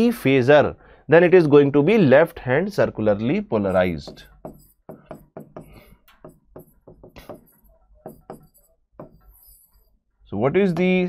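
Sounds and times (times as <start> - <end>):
pen tapping and scratching on board: 3.7 - 9.9, 10.7 - 11.0.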